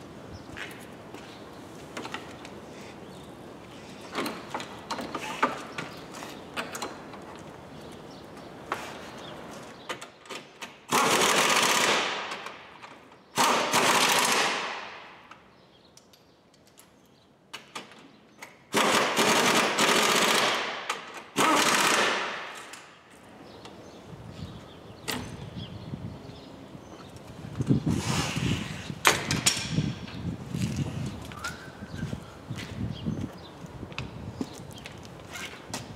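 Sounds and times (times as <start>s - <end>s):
impact driver hammering: 18.7s - 22.7s.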